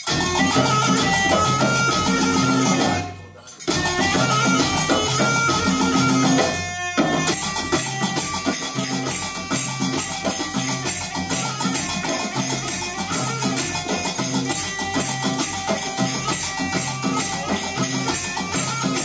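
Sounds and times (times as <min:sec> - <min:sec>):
drums and hand percussion: 0:00.0 - 0:19.0
melodic folk instrument: 0:00.0 - 0:19.0.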